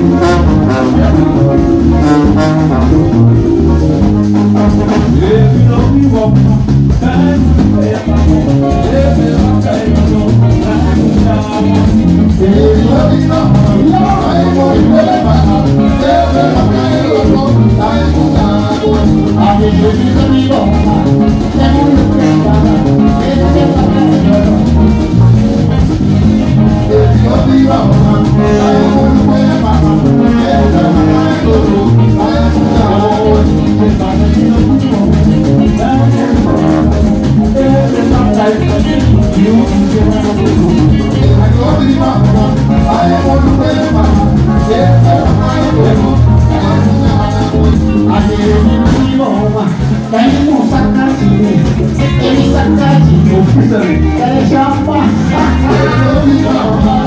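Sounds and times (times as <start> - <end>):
live band playing up-tempo: 0.0 - 57.0
person singing: 0.0 - 57.0.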